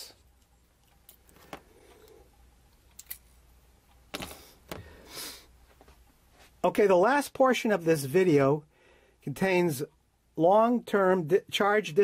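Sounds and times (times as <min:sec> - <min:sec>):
faint handling noise: 0:00.0 - 0:06.7.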